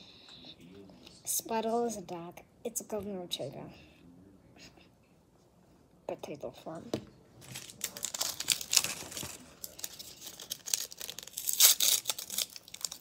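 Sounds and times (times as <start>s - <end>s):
plastic wrapper crinkling: 7.4s - 13.0s.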